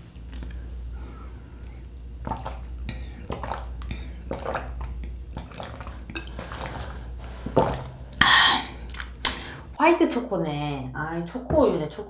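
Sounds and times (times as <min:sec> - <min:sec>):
soft mouth sounds: 0:02.2 - 0:06.8.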